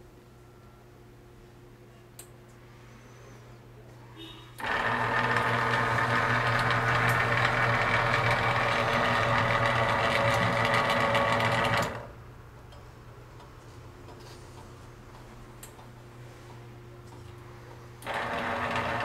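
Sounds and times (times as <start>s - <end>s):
machine mechanical whir: 4.6s - 12.1s, 18.0s - 19.0s.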